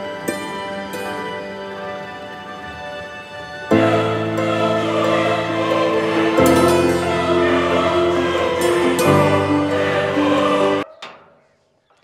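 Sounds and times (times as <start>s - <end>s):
music of long held chords: 0.0s - 10.8s.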